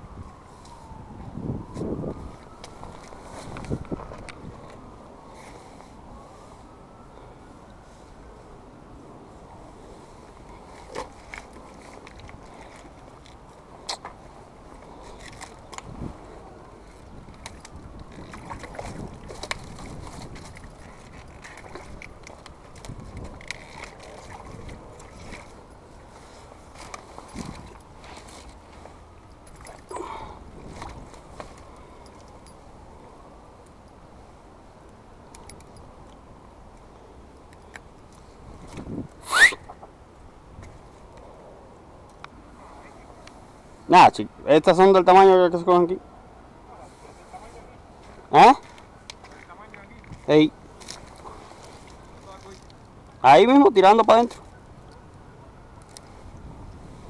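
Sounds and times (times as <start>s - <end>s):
wind on microphone: 0.0s - 5.1s, 15.6s - 25.7s, 27.1s - 28.2s, 29.6s - 31.7s, 38.4s - 39.7s, 56.0s - 57.0s
moving water: 0.0s - 57.0s
fishing tackle clicks: 35.3s - 36.8s.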